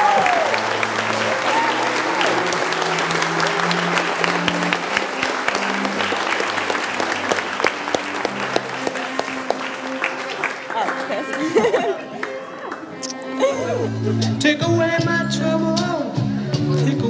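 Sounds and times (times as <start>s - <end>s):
people applauding: 0.0s - 13.6s.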